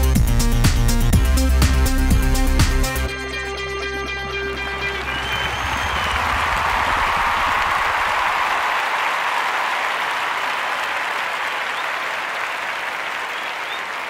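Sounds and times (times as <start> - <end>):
audience applause: 4.3 - 14.0.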